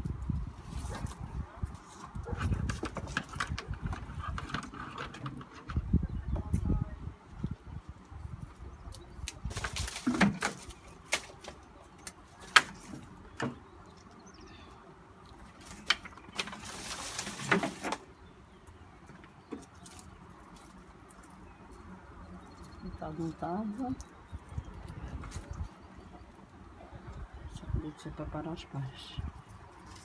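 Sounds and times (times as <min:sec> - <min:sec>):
roots rustling: 0:08.5 - 0:14.3, 0:15.2 - 0:27.6.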